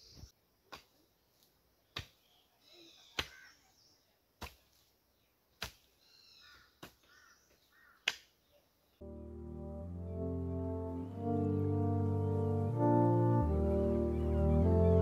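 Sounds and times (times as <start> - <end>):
hand hoe striking soil: 0.7 - 2.3, 3.1 - 3.5, 4.4 - 4.9, 5.6 - 6.0, 6.7 - 8.3
birds chirping: 1.8 - 4.2, 5.1 - 15.0.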